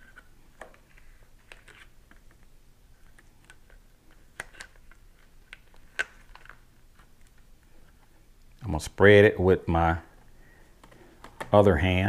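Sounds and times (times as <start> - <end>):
plastic face shield clicking: 10.8 - 11.6.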